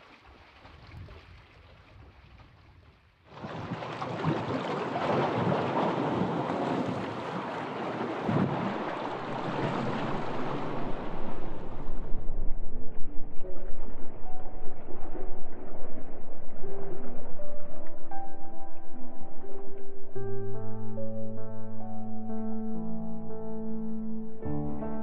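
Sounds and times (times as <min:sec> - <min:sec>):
waves splashing against boulders: 0:03.3 - 0:12.3.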